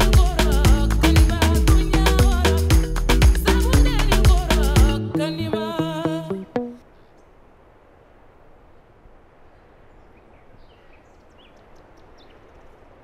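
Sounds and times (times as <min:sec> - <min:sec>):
background music: 0:00.0 - 0:06.8
steady low hiss: 0:00.0 - 0:13.0
bird chirps: 0:09.6 - 0:12.7.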